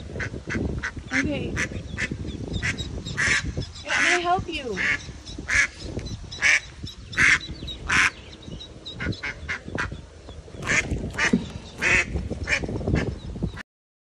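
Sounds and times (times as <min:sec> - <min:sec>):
duck quacking harshly: 0:00.2 - 0:05.7, 0:10.6 - 0:13.1.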